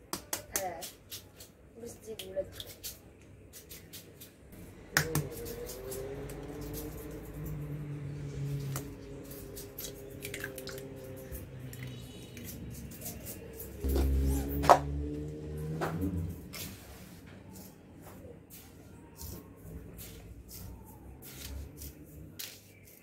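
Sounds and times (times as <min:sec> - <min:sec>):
egg cracking on glass bowl: 0:09.6 - 0:10.9.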